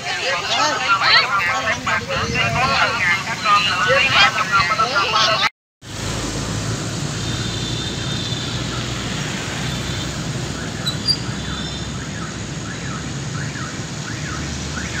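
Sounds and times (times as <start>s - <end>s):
motorbikes passing: 0.0s - 15.0s
road traffic: 0.0s - 15.0s
high chirps: 10.8s - 11.8s.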